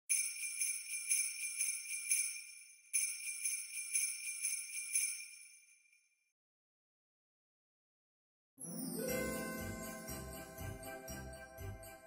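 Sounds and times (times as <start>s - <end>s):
jingle bells shaken: 0.1s - 6.0s, 8.6s - 12.0s.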